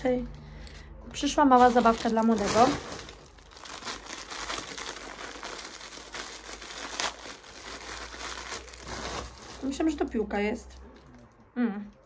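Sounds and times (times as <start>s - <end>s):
packaging crinkling: 1.4s - 10.1s.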